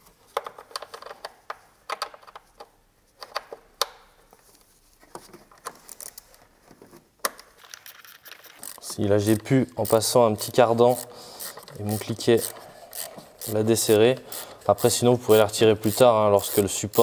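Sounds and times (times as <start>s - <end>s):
ratchet wrench clicking: 8.5s - 17.0s.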